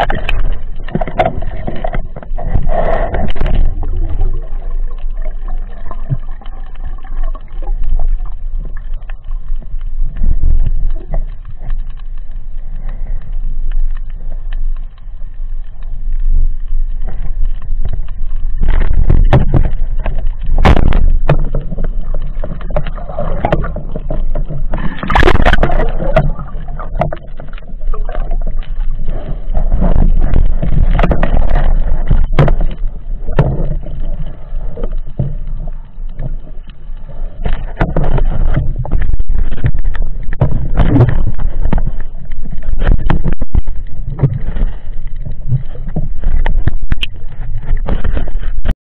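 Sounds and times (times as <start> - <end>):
muffled underwater water noise: 0.0 - 48.7
loud splashing rush: 22.9 - 27.0.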